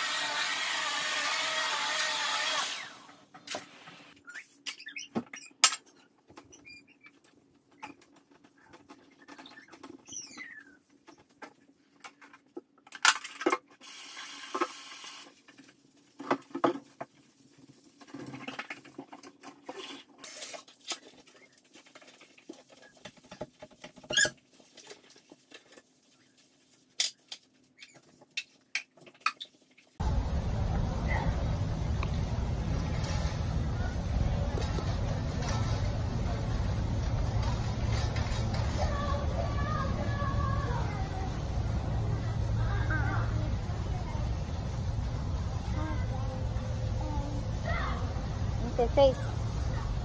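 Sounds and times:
faint steady hum: 30.0 - 50.0.

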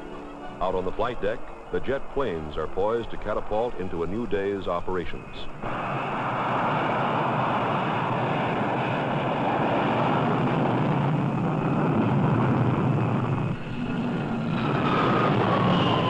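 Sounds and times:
falling engine whine: 0.0 - 16.0
jet engines at high power: 0.0 - 16.0.

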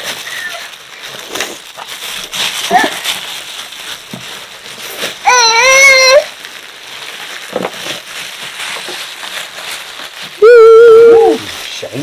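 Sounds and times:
plastic wrap crinkling: 0.0 - 12.0
toddler squealing: 5.2 - 6.3.

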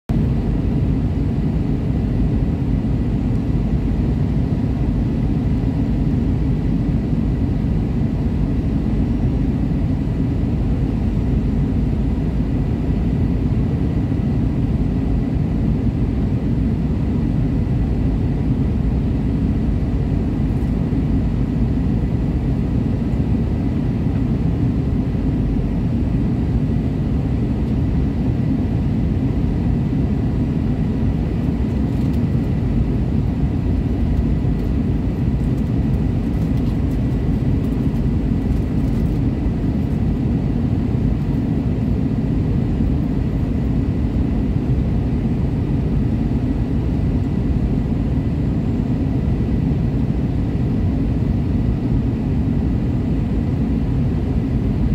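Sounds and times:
jet engine rumble in cabin: 0.1 - 54.9.

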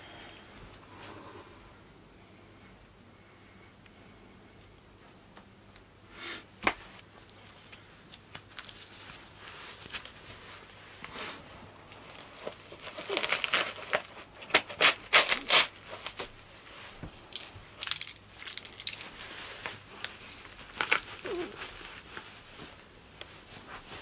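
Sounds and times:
nylon fabric and straps ripping: 12.0 - 16.3, 17.8 - 22.2.

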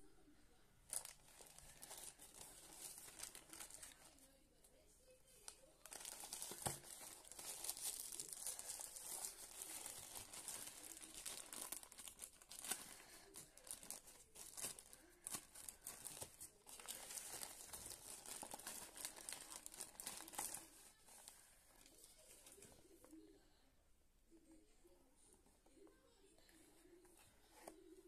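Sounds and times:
plastic bag crinkling and tearing: 0.9 - 4.2, 5.4 - 22.6.

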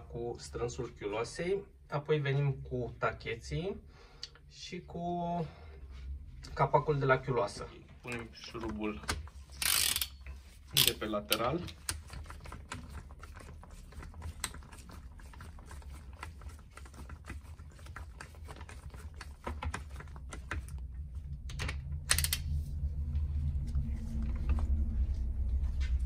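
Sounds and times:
socket ratchet clicking: 9.6 - 10.2, 22.0 - 22.5.

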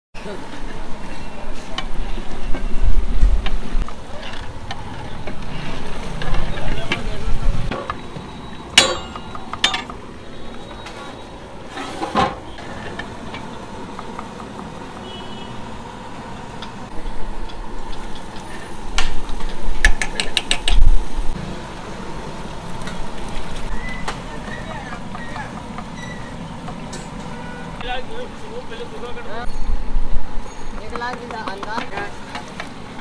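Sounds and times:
low traffic rumble: 0.2 - 33.0
utensils clinking against metal pots: 4.2 - 10.0.

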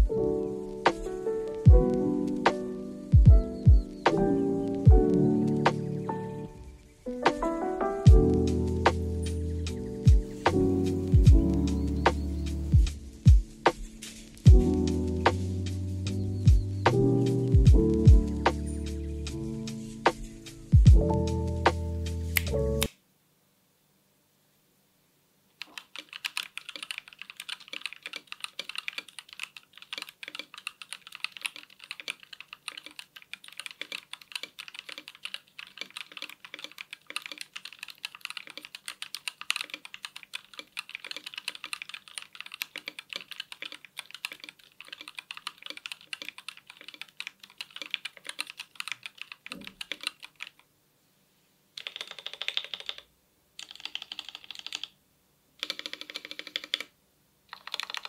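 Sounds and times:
mechanical keyboard typing: 25.6 - 50.6, 51.8 - 55.0, 55.6 - 56.9, 57.5 - 58.0.

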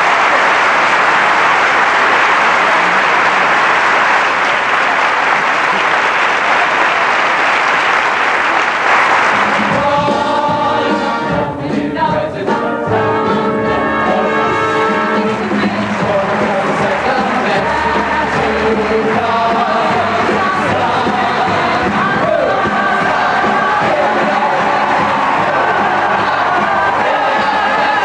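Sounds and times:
audience applauding: 0.0 - 10.4, 15.3 - 28.0
brassy orchestra music: 8.2 - 11.6, 12.4 - 28.0.

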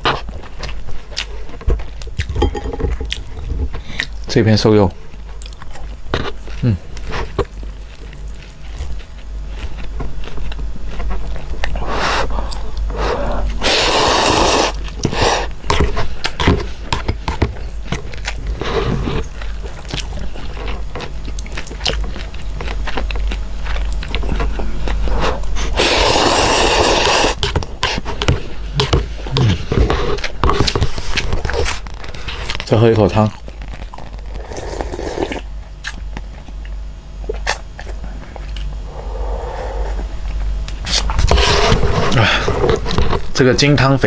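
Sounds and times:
chewing: 0.0 - 4.3, 5.1 - 43.3
steady low hum: 0.0 - 44.0
person slurping noodles: 11.8 - 15.5, 25.7 - 28.0, 34.4 - 35.4.

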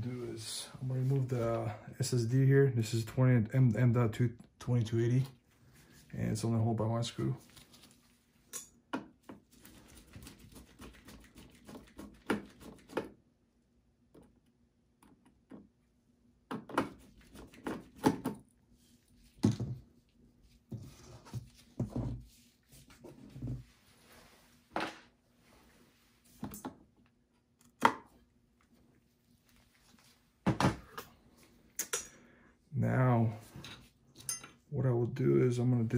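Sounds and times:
rustling: 7.4 - 8.5.

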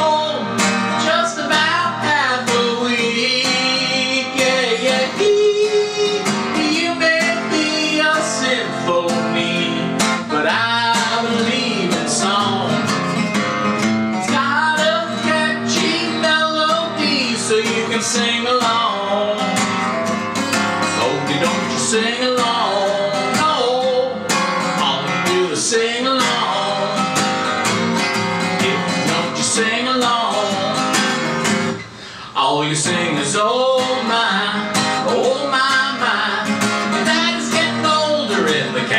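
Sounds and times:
man singing: 0.0 - 13.2, 14.1 - 19.8, 20.8 - 38.9
acoustic guitar: 0.0 - 38.9.

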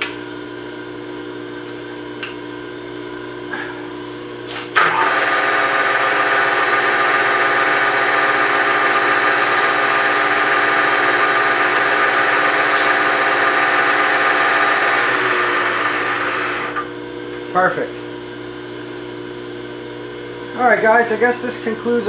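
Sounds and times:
milling machine spindle drive whine: 4.7 - 17.2.

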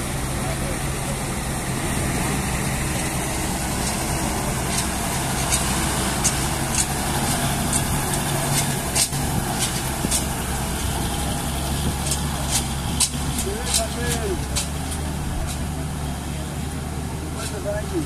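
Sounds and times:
truck engine running slowly: 0.0 - 18.0.

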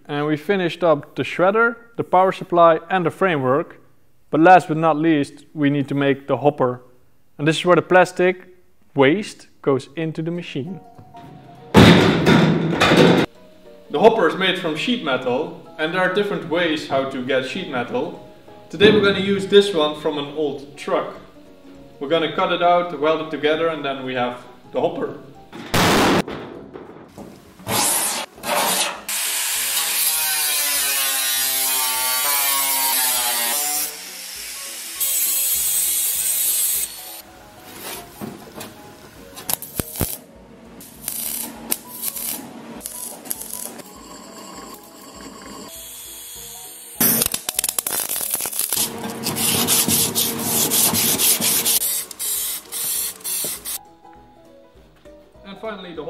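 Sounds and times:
angle grinder cutting sheet metal: 27.7 - 37.2, 41.1 - 47.5, 48.4 - 53.8
welder crackling and popping: 39.4 - 43.9, 47.0 - 53.8.

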